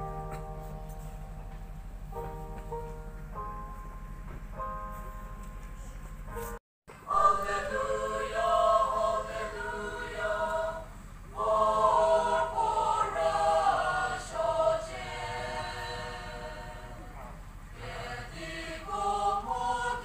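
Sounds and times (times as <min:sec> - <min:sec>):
choir singing long notes: 0:07.0 - 0:20.0.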